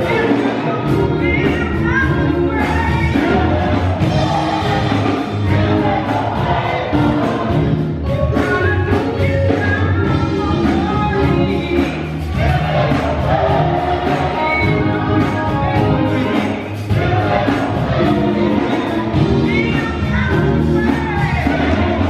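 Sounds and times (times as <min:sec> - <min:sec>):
woman singing into microphone: 0:00.0 - 0:12.2, 0:13.5 - 0:17.4, 0:18.0 - 0:22.0
gospel choir singing: 0:00.0 - 0:22.0.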